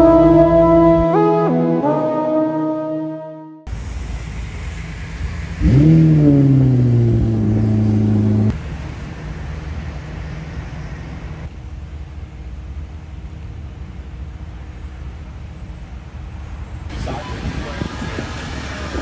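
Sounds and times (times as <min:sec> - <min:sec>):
car engine starting and idling: 0:03.7 - 0:09.9
low outdoor rumble: 0:03.7 - 0:19.0.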